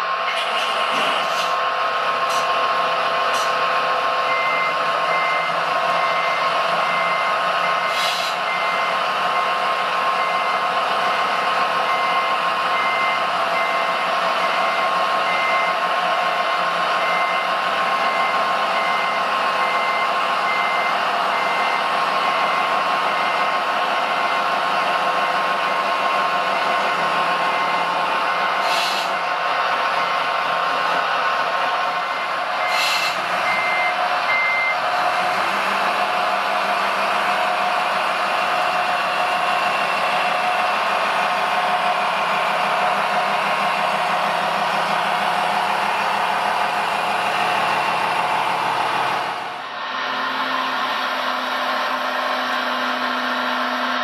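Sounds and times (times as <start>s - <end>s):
model excavator humming: 0.0s - 54.0s
travel alarm beeping: 11.9s - 15.8s, 33.5s - 34.8s.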